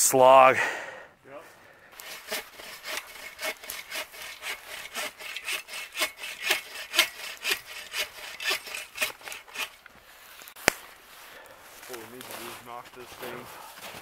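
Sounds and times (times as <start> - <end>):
hand saw cutting wood: 2.0 - 9.8.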